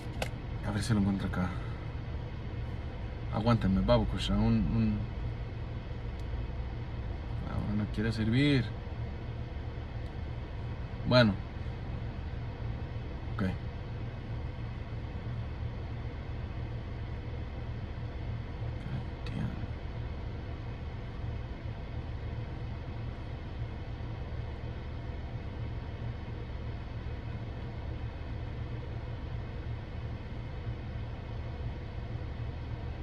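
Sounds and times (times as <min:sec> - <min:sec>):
car engine idling: 0:00.0 - 0:33.0
car ventilation running: 0:00.0 - 0:33.0.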